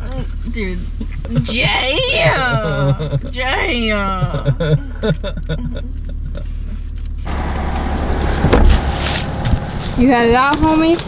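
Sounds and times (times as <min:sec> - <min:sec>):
low hum inside truck cab: 0:00.0 - 0:11.0
outdoor noise: 0:00.0 - 0:11.0
loud rustle: 0:07.3 - 0:11.0.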